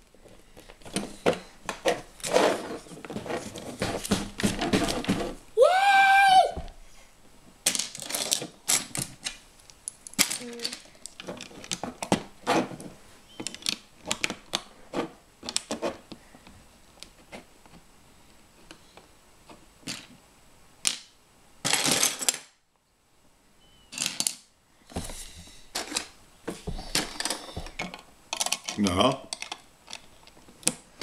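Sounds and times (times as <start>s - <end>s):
rattle of sifting bricks: 0.8s - 5.4s, 7.7s - 9.0s, 21.6s - 22.4s.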